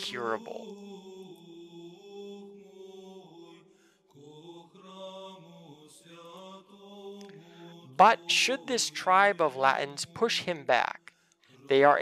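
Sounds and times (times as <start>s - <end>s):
faint slow chanting: 0.0s - 9.3s.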